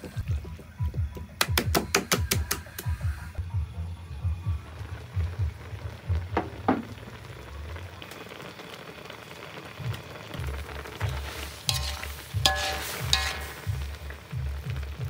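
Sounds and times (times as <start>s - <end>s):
background music with low beat: 0.0s - 7.0s, 10.4s - 15.0s
liquid simmering in a wok: 4.2s - 15.0s
metal tongs clinking on wok: 11.6s - 13.8s.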